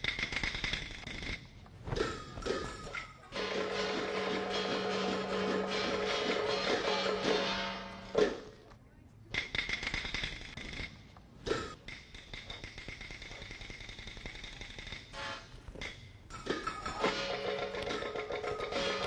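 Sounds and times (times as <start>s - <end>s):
percussion strikes: 0.0s - 8.6s, 9.3s - 19.0s
dense instrumental music: 3.4s - 8.5s, 16.8s - 19.0s.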